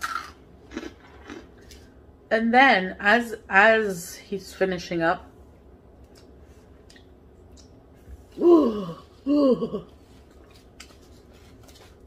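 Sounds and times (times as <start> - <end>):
woman moaning: 8.4 - 9.9.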